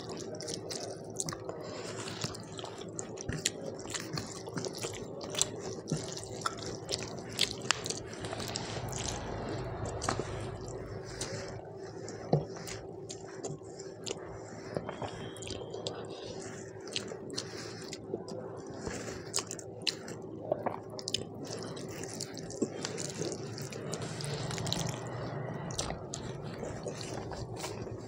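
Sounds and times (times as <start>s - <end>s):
wet chewing sounds: 0.0s - 28.0s
steady low hum: 4.3s - 19.2s, 21.4s - 28.0s.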